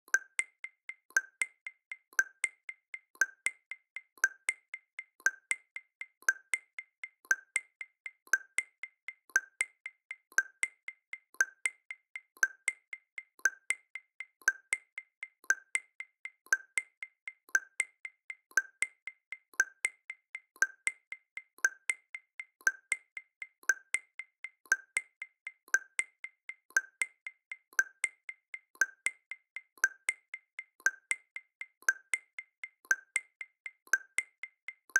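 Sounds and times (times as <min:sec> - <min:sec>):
wood-block percussion clicks: 0:00.1 - 0:34.9.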